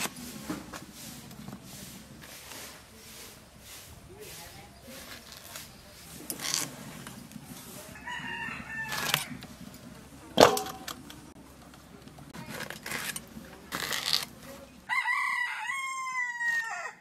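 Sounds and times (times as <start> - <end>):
rooster crowing: 8.0 - 9.4, 14.9 - 17.0.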